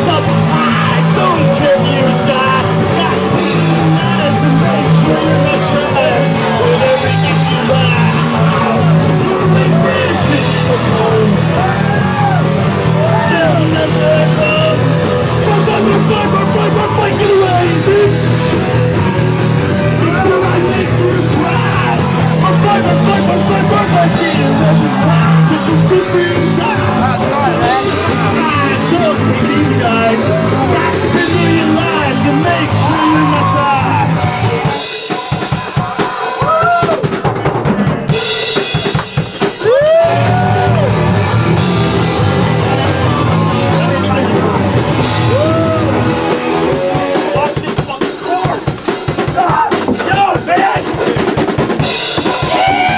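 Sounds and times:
person singing lead vocal: 0.0s - 12.2s, 12.9s - 18.9s, 19.7s - 37.0s, 45.2s - 47.9s
drums and crashing cymbals: 0.0s - 52.9s
electric guitars: 0.0s - 52.9s
live rock band playing: 0.0s - 52.9s.

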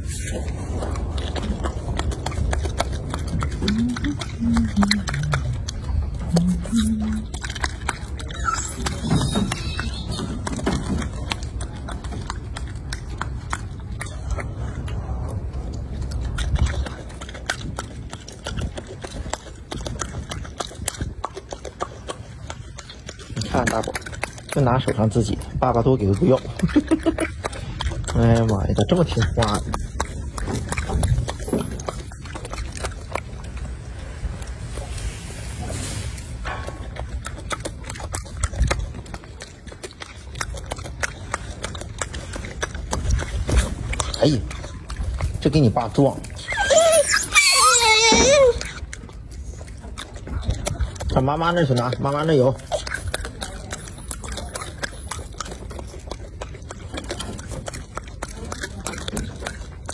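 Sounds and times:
low steady rumble: 0.0s - 47.2s
monkey chewing with clicks and smacks: 0.0s - 59.9s.

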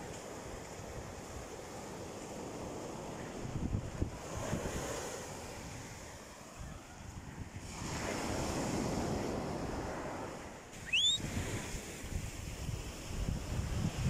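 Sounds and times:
surf washing onto beach: 0.0s - 14.0s
wind buffeting microphone: 0.0s - 14.0s
high rising whistle: 10.8s - 11.2s.

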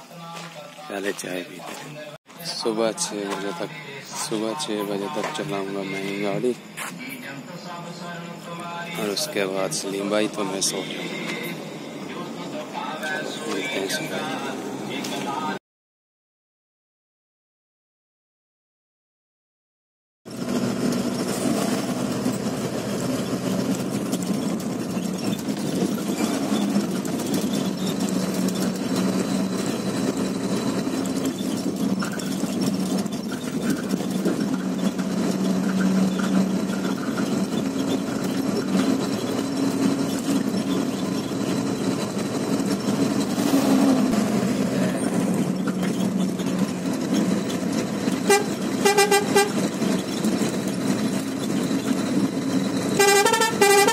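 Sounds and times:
truck engine drone: 0.0s - 15.6s, 20.3s - 53.9s
horn short toots: 48.2s - 49.7s, 53.0s - 53.9s.

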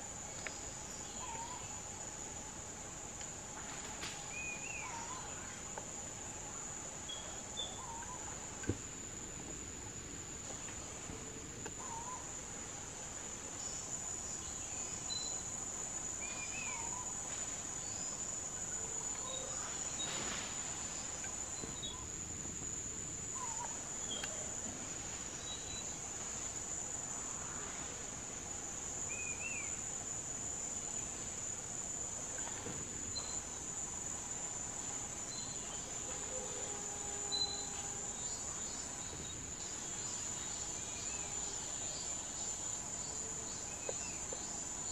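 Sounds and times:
insects droning: 0.0s - 44.9s.

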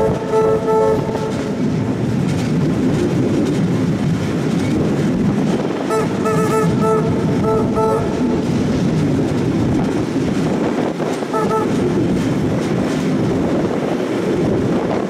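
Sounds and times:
short pitched tones: 0.0s - 1.6s, 5.9s - 8.4s, 11.3s - 12.0s
train wheels rumbling on track: 0.0s - 15.0s.

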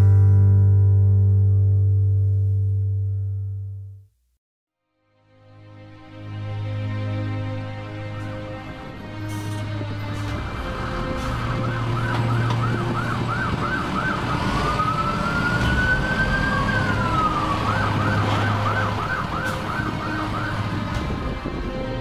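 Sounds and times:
electronic siren yelping and wailing: 11.4s - 20.9s.

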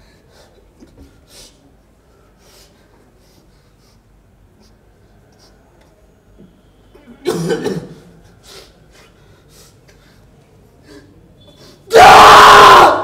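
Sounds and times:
faint room noise: 0.0s - 13.0s
person coughing loudly: 7.2s - 8.1s.

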